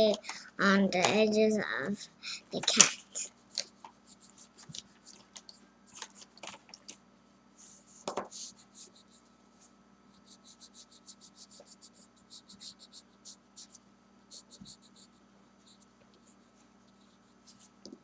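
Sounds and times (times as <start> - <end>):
crayon scratching on paper: 10.1 - 17.8.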